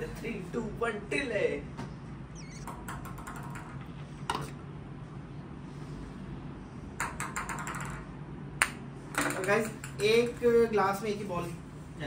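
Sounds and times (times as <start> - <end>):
ball bouncing on glass: 2.4 - 4.5, 7.0 - 10.4.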